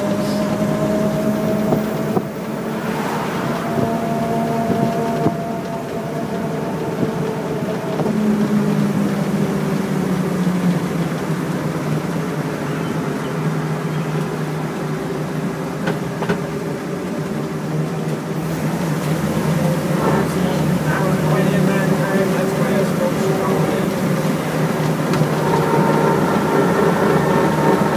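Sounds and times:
road noise: 0.0s - 27.9s
truck engine running: 0.0s - 27.9s.

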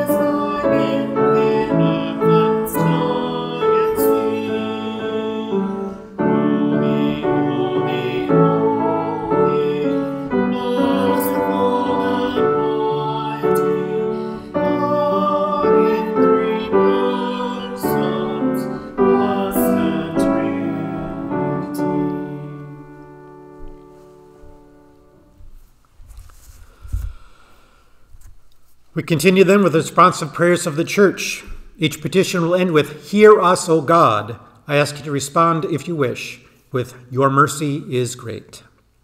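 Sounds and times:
piano chords and notes: 0.0s - 25.4s.

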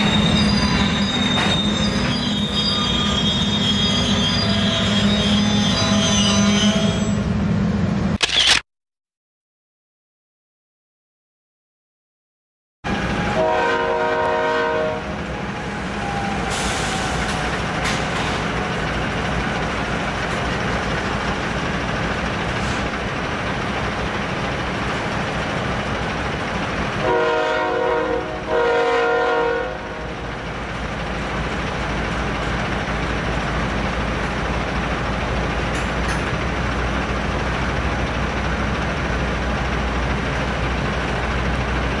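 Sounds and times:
train wheels rumbling on rail: 0.0s - 8.2s, 12.9s - 42.0s
locomotive air horn blasts: 13.4s - 15.1s, 27.0s - 30.1s.

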